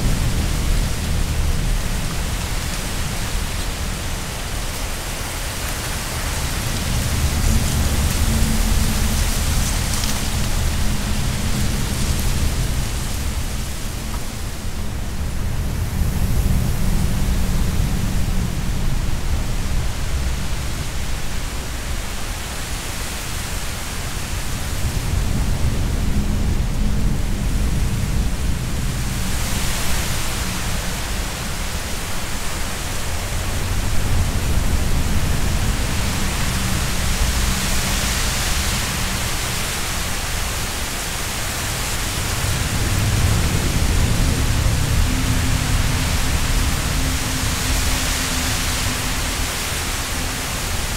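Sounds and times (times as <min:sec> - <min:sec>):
low droning hum: 0:00.0 - 0:21.7, 0:24.3 - 0:50.9.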